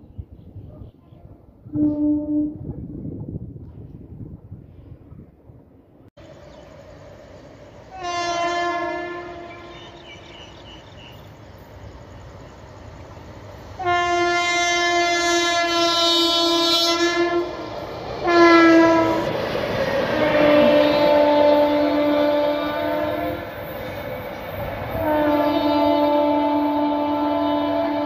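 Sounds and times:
train running noise: 0.2 - 28.0
locomotive air horn blasts: 1.7 - 2.7, 7.9 - 10.1, 13.8 - 17.6, 18.2 - 19.3, 20.2 - 23.5, 24.9 - 28.0.

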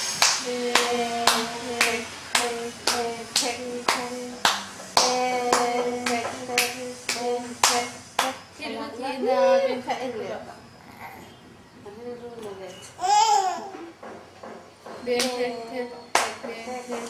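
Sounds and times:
rhythmic hand claps: 0.0 - 8.4, 15.1 - 17.0
person singing steady notes: 0.3 - 8.3.

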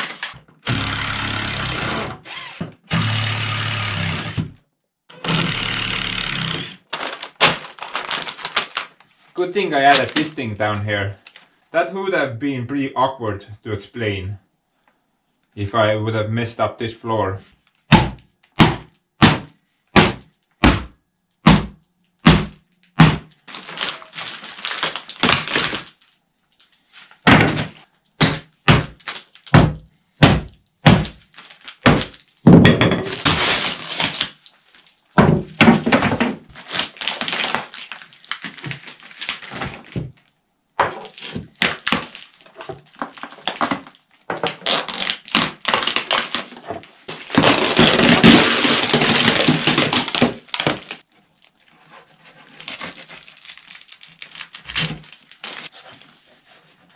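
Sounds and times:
cracking and scraping of strips: 6.8 - 10.4, 22.6 - 28.0, 31.1 - 32.5, 33.1 - 35.2, 35.8 - 40.3, 41.0 - 56.9.

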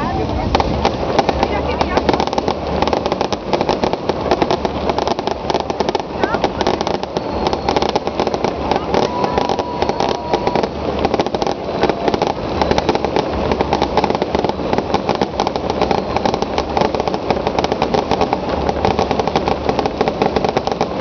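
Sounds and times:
fireworks crackling and banging: 0.0 - 21.0.

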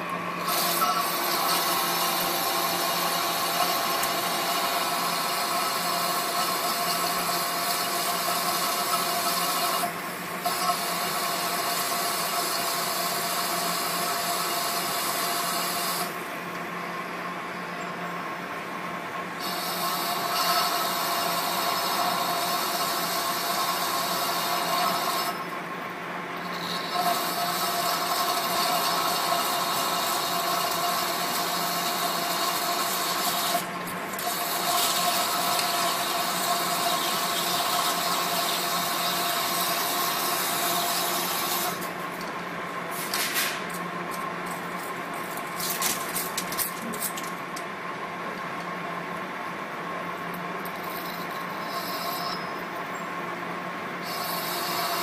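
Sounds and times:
machine hum: 0.0 - 42.9
lathe tool cutting metal: 0.4 - 16.2, 19.4 - 25.5, 26.4 - 41.9, 54.0 - 55.0.

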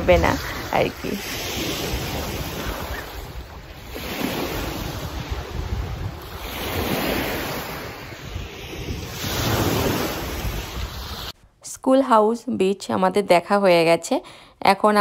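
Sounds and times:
wind rumbling on microphone: 0.0 - 11.4
waves washing onto pebbles: 0.2 - 11.3.

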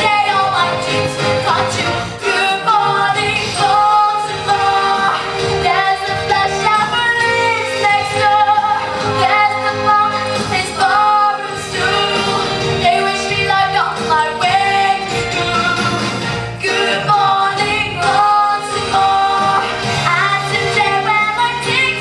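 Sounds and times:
girl singing: 12.8 - 15.0, 16.8 - 22.0.

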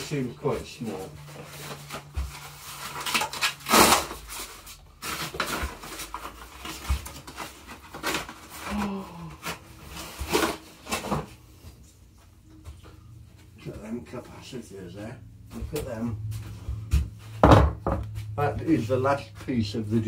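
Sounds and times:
cardboard box being torn open: 1.6 - 11.2.

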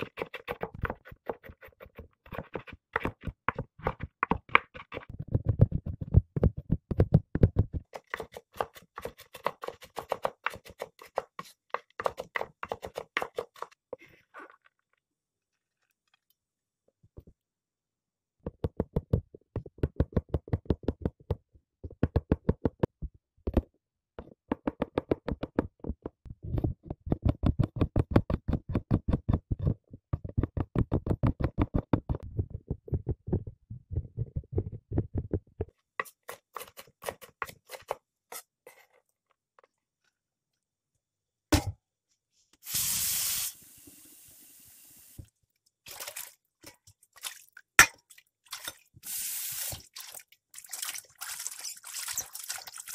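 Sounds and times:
knife chopping on cutting board: 8.0 - 13.7
short hiss: 42.6 - 45.2.

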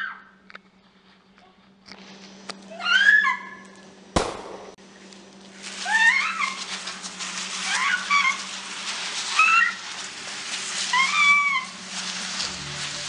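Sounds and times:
body dragged across concrete: 4.9 - 13.0
short squeals: 5.7 - 13.0.

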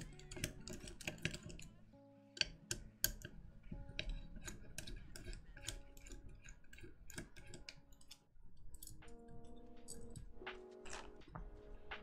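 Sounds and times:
screwdriver clicking on screws: 0.0 - 1.7, 2.4 - 3.4, 4.0 - 10.3.

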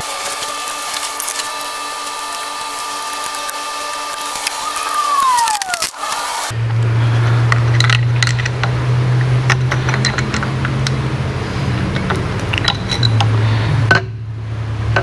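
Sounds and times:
steady low hum: 0.0 - 15.0
metallic clicks of tools: 7.5 - 11.0, 11.9 - 14.1.

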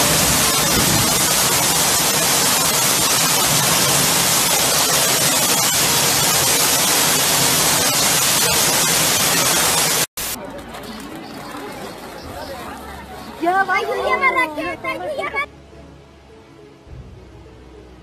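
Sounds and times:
loud steady rushing noise: 0.0 - 10.4.

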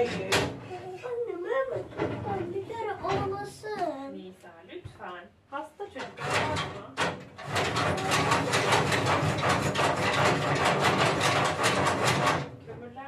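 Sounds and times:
rapid mechanical clatter: 6.2 - 12.6.

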